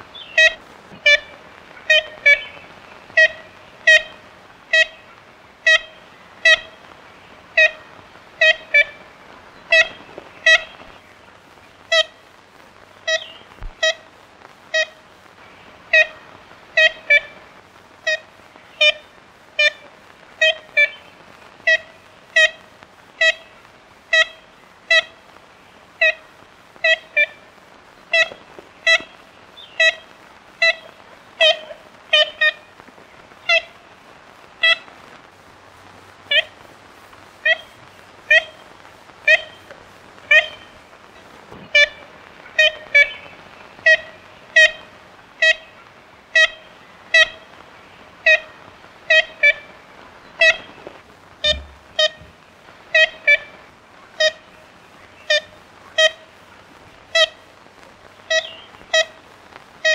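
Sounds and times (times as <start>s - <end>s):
woodpecker calls: 0.1s - 6.8s, 7.5s - 12.2s, 13.0s - 14.1s, 28.1s - 32.8s, 33.4s - 33.9s, 37.4s - 40.9s, 41.5s - 56.3s, 58.3s - 59.2s.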